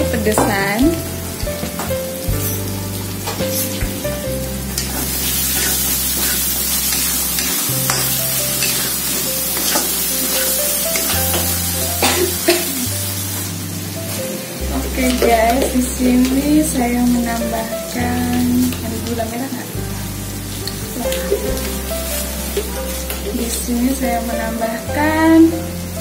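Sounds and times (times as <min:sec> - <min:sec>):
background music with bass: 0:00.0 - 0:26.0
paste sizzling in a wok: 0:00.1 - 0:26.0
metal spatula scraping a pan: 0:04.7 - 0:11.9.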